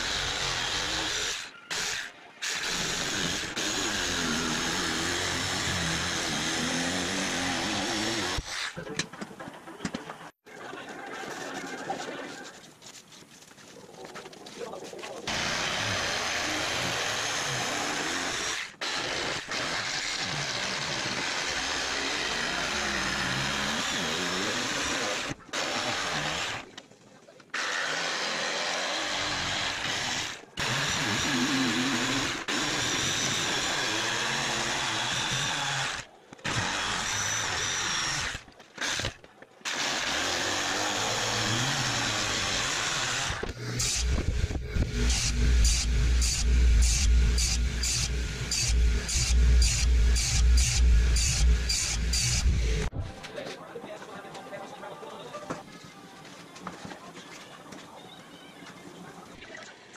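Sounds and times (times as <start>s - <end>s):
jigsaw cutting plywood: 0.0s - 8.6s, 15.3s - 26.7s, 27.5s - 53.0s.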